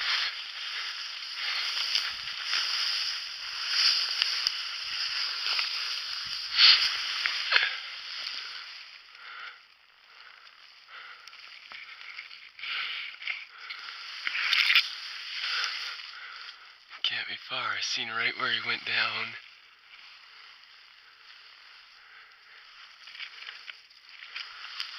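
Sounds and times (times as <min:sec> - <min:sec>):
dry ferns and brush rustling: 0:00.0 - 0:24.9.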